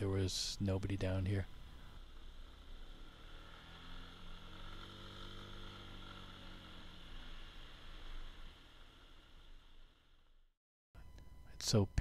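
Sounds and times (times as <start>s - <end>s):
scooter engine running: 1.4s - 10.2s.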